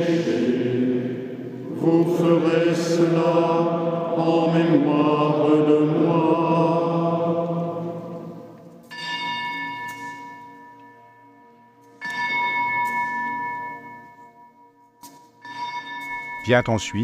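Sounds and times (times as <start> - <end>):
altar bell ringing: 8.8 - 17.0.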